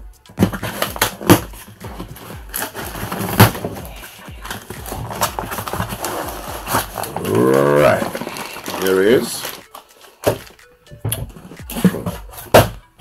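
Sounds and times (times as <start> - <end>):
cardboard box being opened: 0.4 - 10.5.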